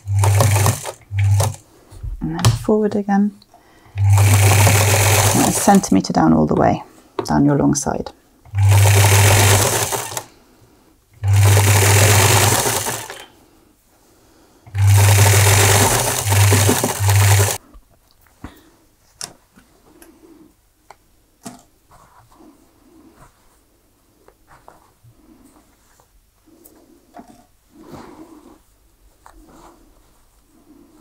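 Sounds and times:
sewing machine stitching: 0.0 - 1.6, 3.9 - 5.9, 8.5 - 10.3, 11.2 - 13.3, 14.7 - 17.6.

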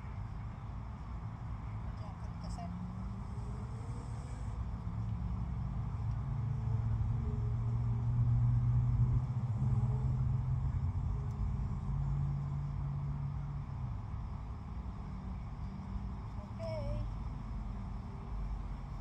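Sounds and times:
low engine rumble: 0.0 - 19.0.

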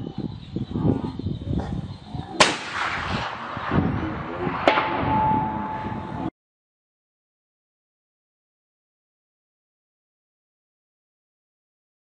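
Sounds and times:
suppressed rifle shot: 2.4 - 5.8
steady ringing tone: 4.8 - 6.3.

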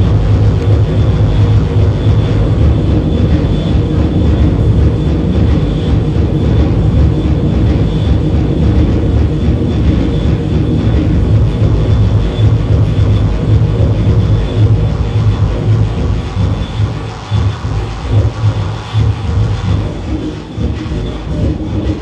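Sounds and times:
low electronic drone: 0.0 - 22.0
noisy hiss: 0.0 - 22.0.

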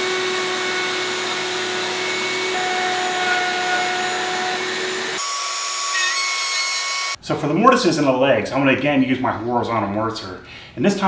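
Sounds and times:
router cutting wood: 0.0 - 7.2.

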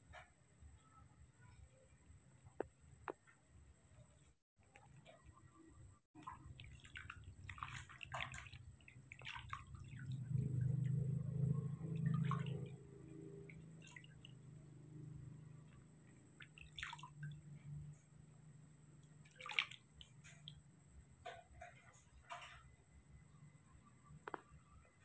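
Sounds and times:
water splashing in a plastic basin: 6.2 - 15.1, 15.7 - 18.0, 19.0 - 21.5
water trickling: 6.2 - 18.2, 19.0 - 22.0
low rumble: 9.7 - 13.7.

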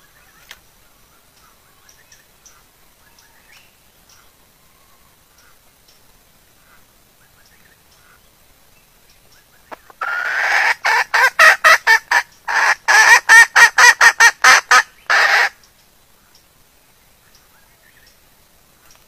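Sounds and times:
hen cackling: 9.8 - 15.6.

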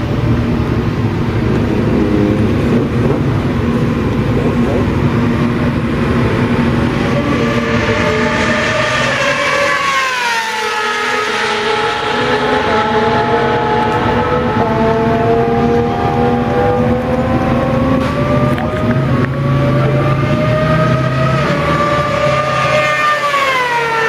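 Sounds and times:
racing engines revving: 0.0 - 24.0
vehicle passing by: 1.4 - 24.0.

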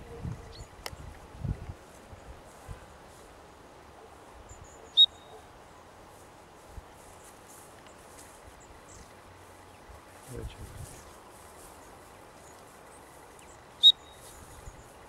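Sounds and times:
soft high chirps: 4.5 - 5.4, 13.4 - 14.9
sharp high-pitched chirp: 4.6 - 5.4, 13.8 - 14.4.

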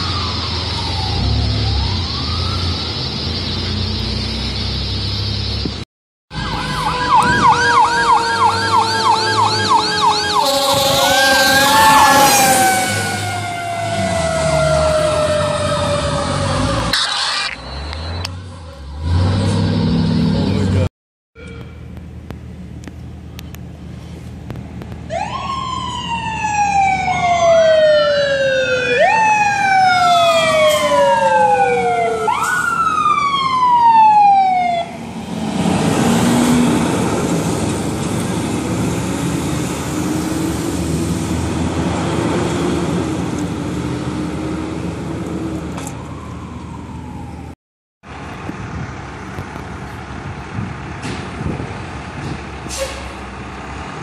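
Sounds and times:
fire engine siren wailing: 0.0 - 4.1, 6.3 - 19.2, 25.1 - 47.6
fire engine rumbling: 0.0 - 54.0.

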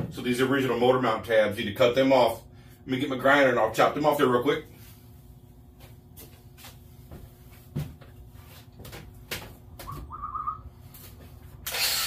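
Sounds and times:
short warbling whistle: 9.9 - 10.7.

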